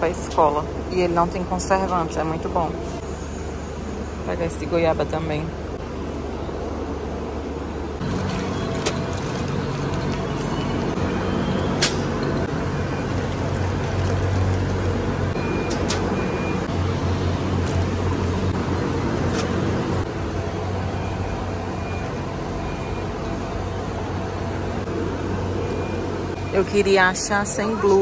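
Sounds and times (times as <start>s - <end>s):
store hum and rumble: 0.0s - 28.0s
cart and package clicks: 8.0s - 10.9s.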